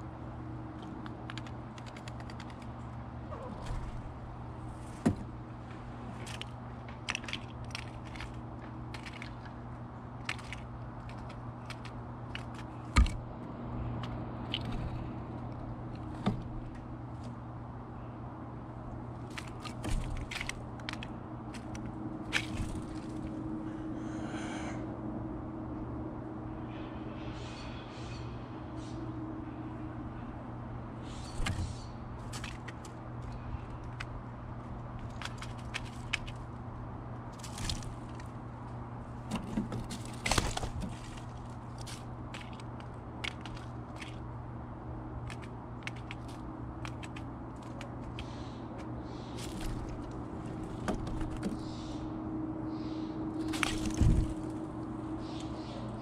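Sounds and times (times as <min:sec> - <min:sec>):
steady low hum: 0:00.0 - 0:56.0
bird pecking seeds on wood: 0:00.8 - 0:02.8, 0:06.1 - 0:13.3, 0:19.2 - 0:23.4, 0:31.3 - 0:36.6, 0:37.3 - 0:38.4, 0:39.1 - 0:44.4, 0:45.1 - 0:51.7.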